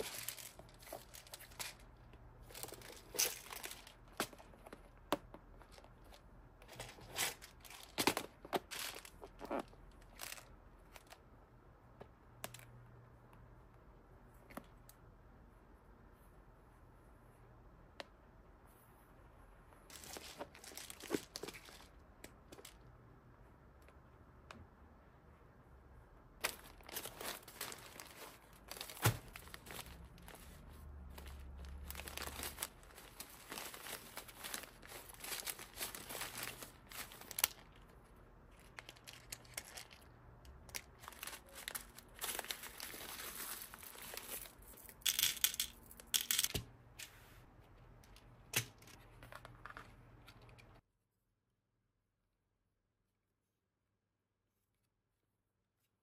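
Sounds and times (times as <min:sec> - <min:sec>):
plastic bags crinkling: 0:00.0 - 0:05.0, 0:05.6 - 0:11.2, 0:19.9 - 0:22.9, 0:26.4 - 0:46.4.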